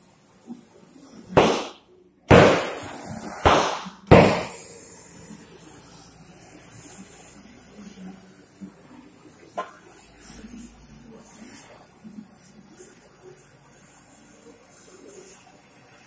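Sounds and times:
loud sudden bangs: 1.4 - 2.8, 3.4 - 4.5.

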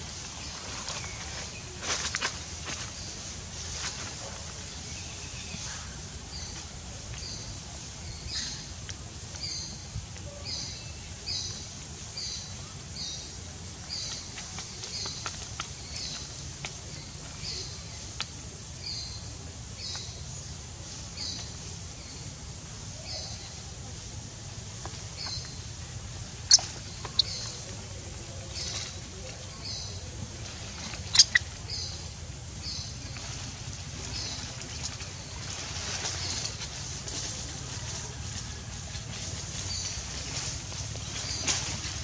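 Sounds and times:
steady high hiss: 0.0 - 42.0
bird chirping: 26.4 - 27.8, 30.8 - 33.0.

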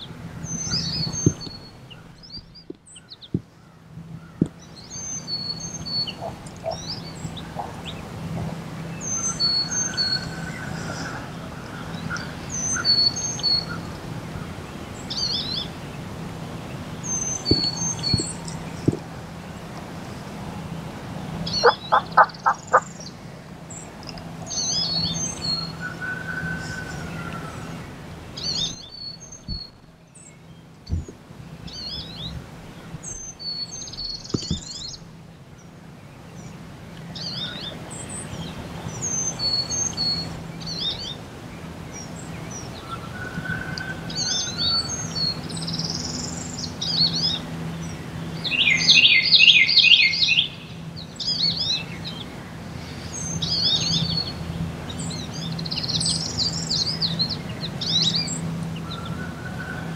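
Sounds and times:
loud bird call notes: 0.0 - 13.9, 21.3 - 23.2
songbirds chirping and singing: 0.0 - 59.9.

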